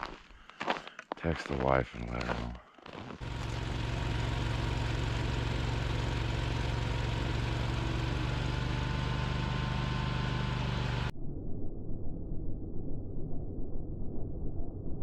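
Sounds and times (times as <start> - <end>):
snowblower engine droning: 2.0 - 11.1.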